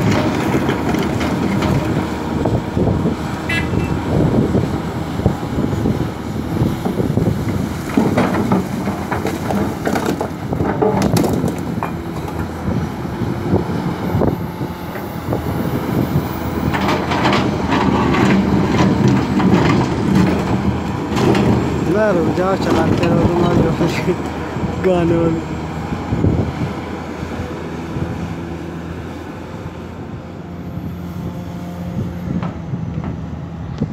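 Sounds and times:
diesel engine running: 0:00.0 - 0:33.9
rocks crunching and clattering: 0:07.4 - 0:12.6.

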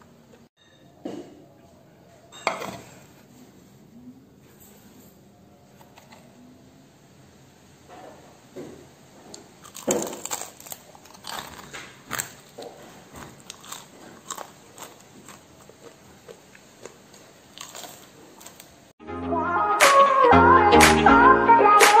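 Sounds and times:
chewing crispy food crunches: 0:09.3 - 0:18.8.

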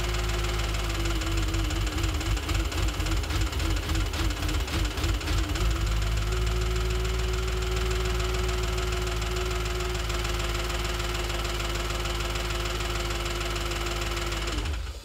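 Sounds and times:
car engine running: 0:00.0 - 0:15.0
fast valvetrain ticking: 0:00.1 - 0:07.3.

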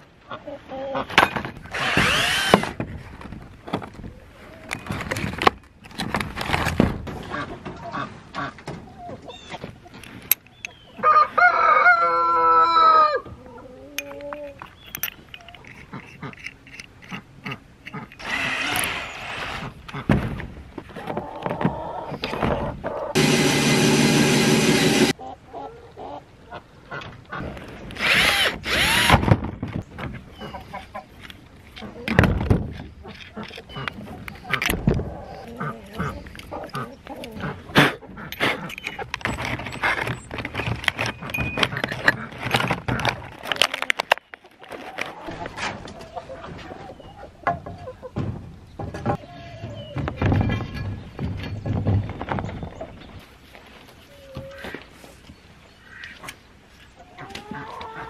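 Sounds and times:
drill chuck rattling whirr: 0:01.7 - 0:02.8, 0:18.1 - 0:19.6, 0:23.2 - 0:25.1, 0:28.0 - 0:29.3
small metal clicks: 0:14.0 - 0:19.0.

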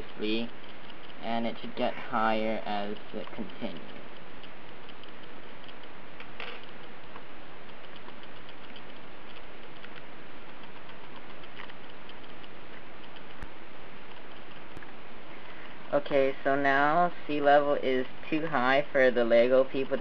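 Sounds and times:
faint regular ticking: 0:00.0 - 0:20.0
sharp click: 0:02.6 - 0:13.5.

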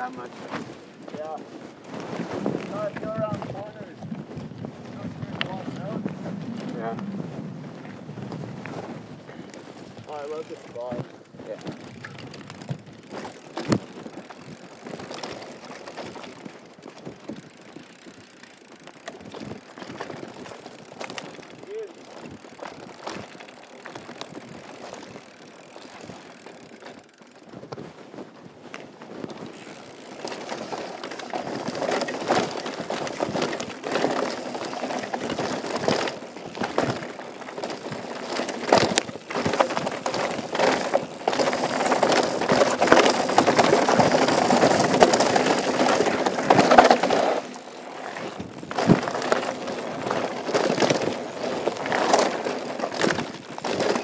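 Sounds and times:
bike knocking and rattling: 0:00.0 - 0:54.0
bike tyres rolling over dirt: 0:00.0 - 0:54.0.

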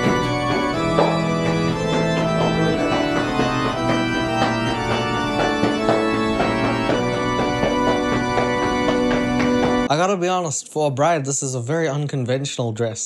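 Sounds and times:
organ playing held chords: 0:00.0 - 0:09.9.

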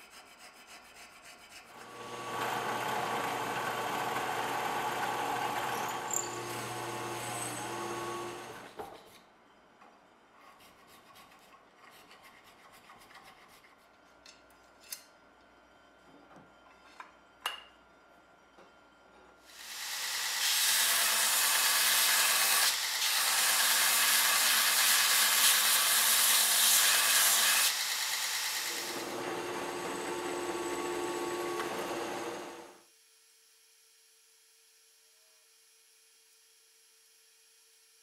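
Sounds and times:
belt grinder grinding steel: 0:01.8 - 0:08.7, 0:19.6 - 0:32.8
drill press boring: 0:01.8 - 0:08.7, 0:19.6 - 0:24.8, 0:27.7 - 0:32.8.

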